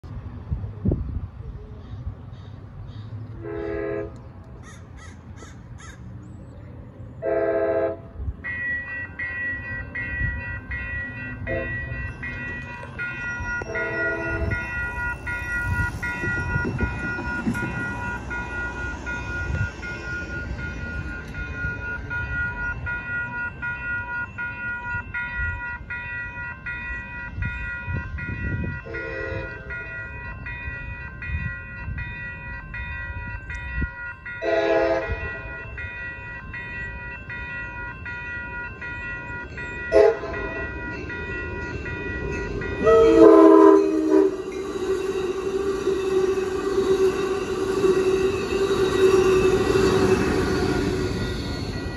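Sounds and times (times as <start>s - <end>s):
train horn short blasts: 3.4s - 4.2s, 7.2s - 8.1s, 11.5s - 12.2s, 13.6s - 14.8s, 28.8s - 29.8s, 34.4s - 35.5s, 39.9s - 40.6s, 42.8s - 51.1s
railroad crossing bell ringing: 7.3s - 51.9s.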